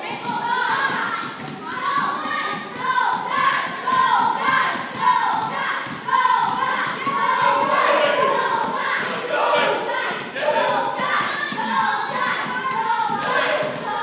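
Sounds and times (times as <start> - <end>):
basketballs bouncing on gym floor: 0.1 - 9.2, 10.0 - 14.0
voices calling: 6.1 - 14.0.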